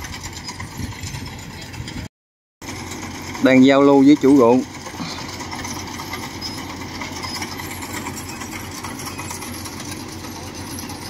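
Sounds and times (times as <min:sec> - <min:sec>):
farm machinery engines droning: 0:00.0 - 0:11.0.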